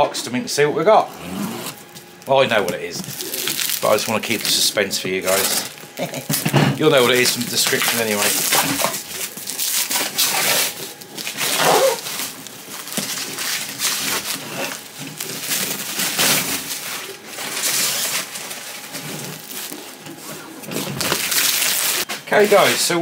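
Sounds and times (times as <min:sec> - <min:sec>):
plastic wrapping crinkling: 0:01.7 - 0:22.8.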